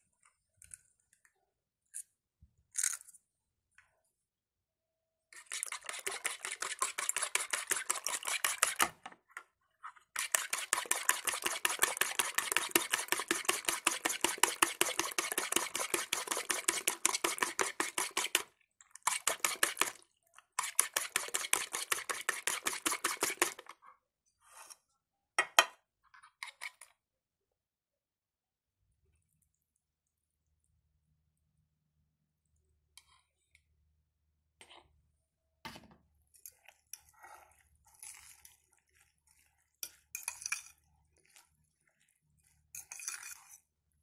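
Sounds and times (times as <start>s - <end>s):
fork beating eggs in a bowl: 5.4s - 9.0s, 10.1s - 23.7s, 36.4s - 43.8s.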